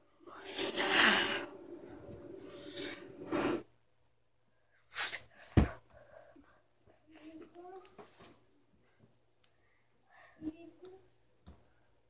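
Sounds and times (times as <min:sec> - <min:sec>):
sharp breathy burst: 0:02.4 - 0:03.7.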